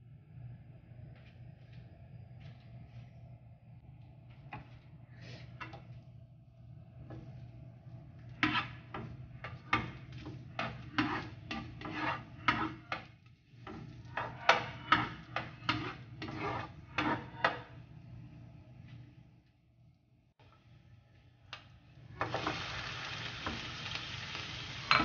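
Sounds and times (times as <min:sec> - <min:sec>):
spatula scraping a frying pan: 0:08.2 - 0:17.8.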